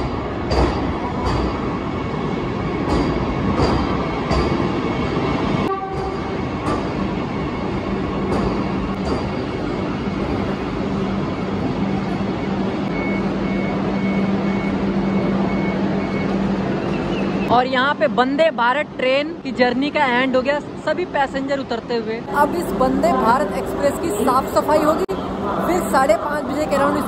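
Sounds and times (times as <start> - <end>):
train wheels clacking over rail joints: 0.0 - 1.7
repeated high beep: 12.4 - 16.5.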